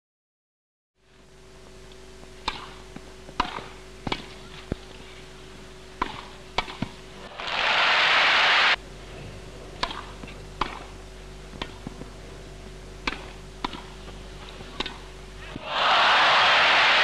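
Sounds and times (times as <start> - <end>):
steady hum: 1.0 - 17.0
racket hitting tennis ball: 2.4 - 4.3, 6.0 - 6.9, 13.0 - 14.0, 14.7 - 15.0.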